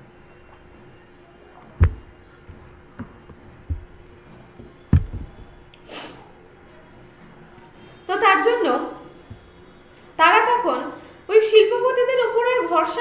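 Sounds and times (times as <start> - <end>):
faint steady hum: 0.0 - 13.0
microphone handling thumps: 1.8 - 5.6
soft knocks: 1.8 - 5.6.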